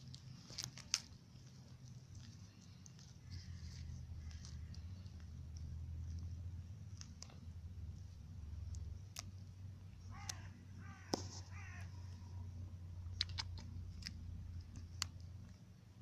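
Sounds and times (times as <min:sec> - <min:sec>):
tortoise beak snapping leaf: 0:00.0 - 0:01.2, 0:13.1 - 0:15.2
bird calling: 0:10.0 - 0:12.5.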